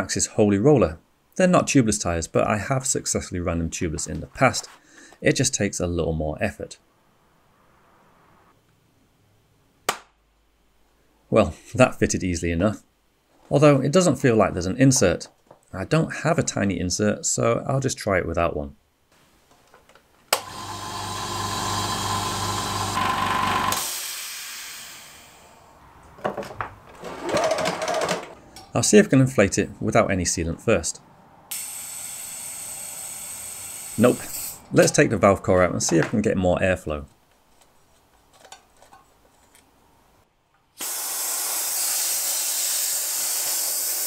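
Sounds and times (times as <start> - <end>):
tyre inflator motor running: 20.4 - 25.4, 31.5 - 34.5, 40.8 - 44.0
air hissing: 23.7 - 25.7, 31.5 - 34.7, 40.8 - 44.0.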